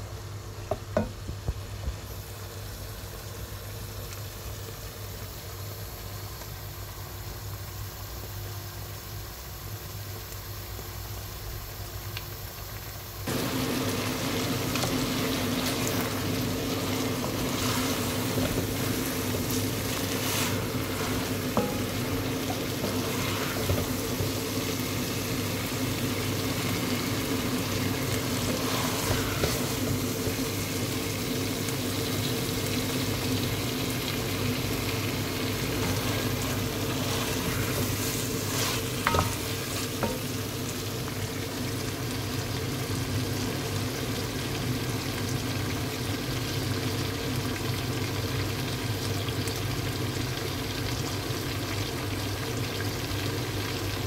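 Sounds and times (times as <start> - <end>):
food sizzling in a pan: 0.0 - 54.0
steady hum: 13.2 - 41.0
wooden spoon scraping: 14.6 - 24.5, 28.0 - 30.4, 35.5 - 40.2.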